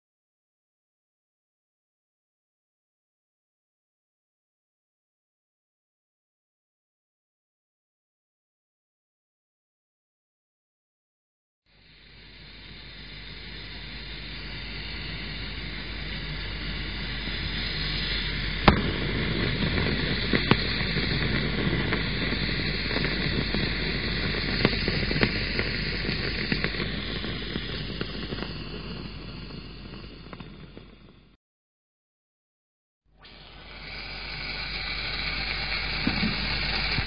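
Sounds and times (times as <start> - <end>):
fizzing hiss: 11.7 - 31.3, 33.2 - 37.0
sharp pops: 16.7 - 31.3, 33.2 - 37.0.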